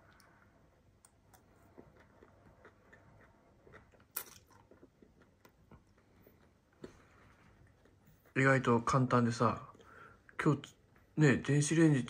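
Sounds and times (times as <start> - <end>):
chewing noodles: 0.0 - 8.4.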